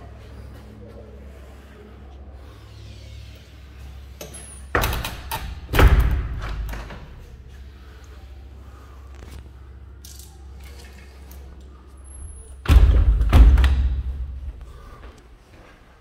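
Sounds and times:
steady low rumble: 0:05.9 - 0:16.0.

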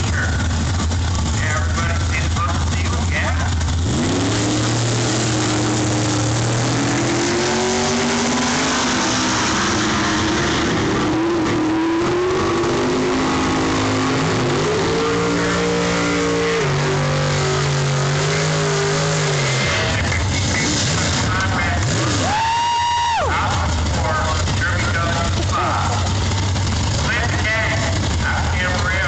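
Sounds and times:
race car engines at full throttle: 0:00.0 - 0:29.0.

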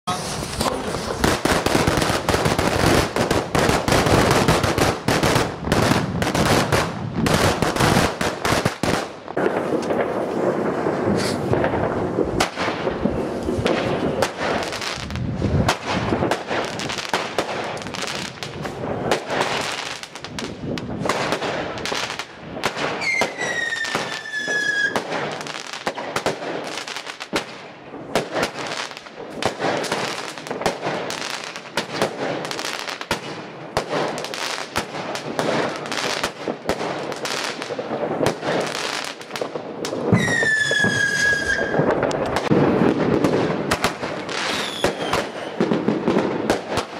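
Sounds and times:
fireworks launching and bursting: 0:00.0 - 0:46.9
falling firework whistle: 0:11.1 - 0:11.5, 0:23.0 - 0:25.0, 0:40.1 - 0:42.0, 0:44.4 - 0:45.6.

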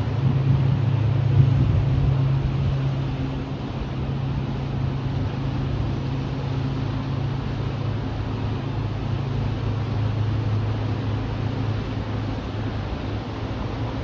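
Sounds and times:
moving water: 0:00.0 - 0:14.0
ship engines humming: 0:00.0 - 0:14.0
wind hiss: 0:00.0 - 0:14.0.

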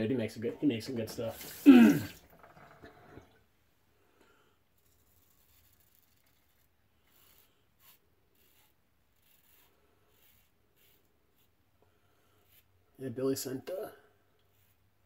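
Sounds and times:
razor scratching stubble: 0:04.8 - 0:11.5.

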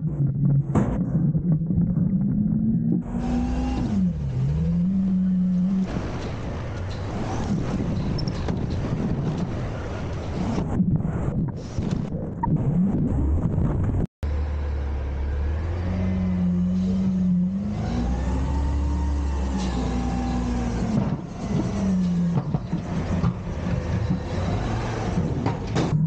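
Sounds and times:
diesel truck engine revving: 0:02.5 - 0:10.8, 0:14.2 - 0:25.8.

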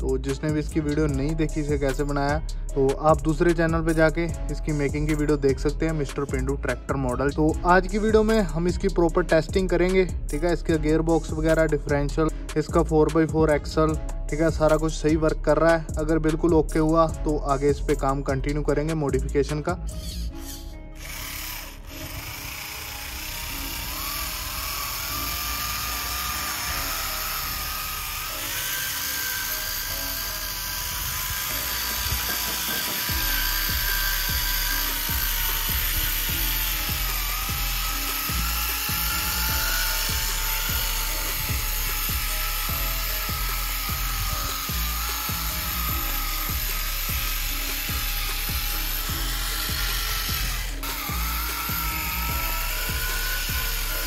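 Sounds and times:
background music with low beat: 0:00.0 - 0:54.0
small motor and gearbox whining: 0:20.0 - 0:54.0.

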